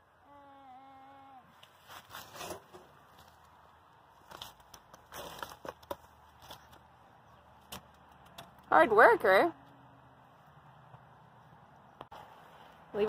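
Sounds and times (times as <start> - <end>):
toy shovel scraping dirt: 1.7 - 3.0.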